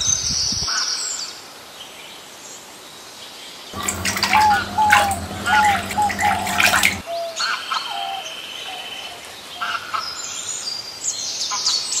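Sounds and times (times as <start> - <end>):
low hum: 3.8 - 7.0
small birds chirping: 3.8 - 7.0.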